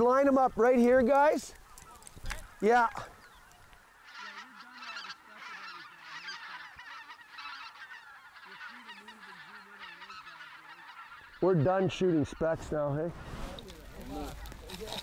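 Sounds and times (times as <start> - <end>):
geese honking in flight: 3.5 - 14.5.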